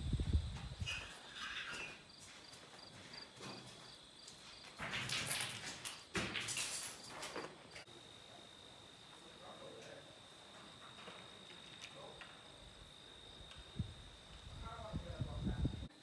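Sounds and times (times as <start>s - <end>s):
insect drone with chirps: 0.0s - 16.0s
footsteps crunching on debris: 0.4s - 7.8s.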